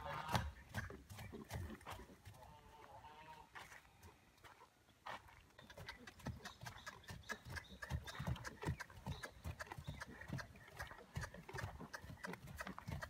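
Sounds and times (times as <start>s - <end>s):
horse hoofbeats on soft dirt: 0.0s - 13.0s.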